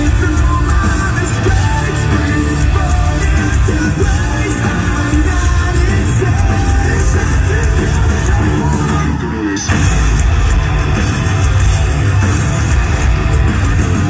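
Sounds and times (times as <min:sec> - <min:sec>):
person singing: 0:00.0 - 0:09.8
distorted electric guitars: 0:00.0 - 0:14.0
drums: 0:00.0 - 0:14.0.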